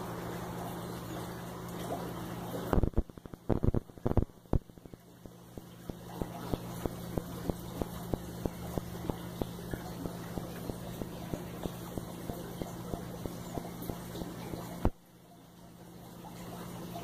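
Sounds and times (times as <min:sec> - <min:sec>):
machine hum: 0:00.0 - 0:17.0
even ticking: 0:02.8 - 0:15.0.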